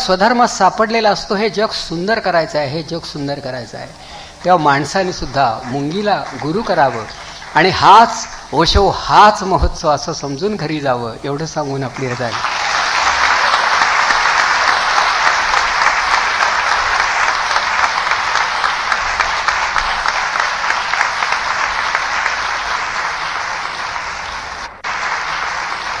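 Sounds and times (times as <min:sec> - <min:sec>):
audience applauding: 0:03.9 - 0:09.5, 0:11.7 - 0:26.0.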